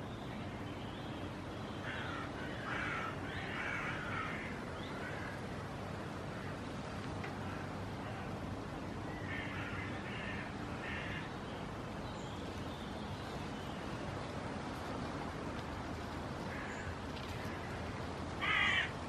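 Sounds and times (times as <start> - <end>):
steady background noise: 0.0 - 19.0
bird cawing: 1.8 - 5.5, 7.2 - 8.4, 9.1 - 11.4, 16.4 - 19.0.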